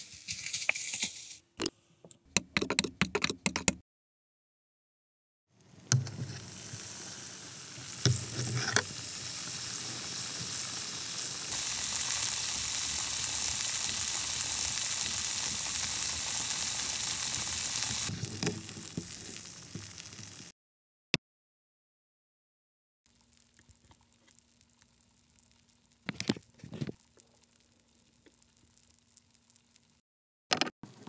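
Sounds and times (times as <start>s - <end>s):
frying sizzle: 5.6s - 20.5s, 23.1s - 30.0s.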